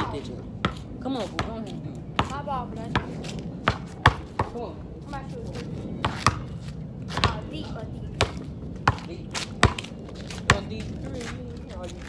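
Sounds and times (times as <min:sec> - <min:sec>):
basketballs bouncing on court: 0:00.0 - 0:04.8, 0:06.0 - 0:10.8.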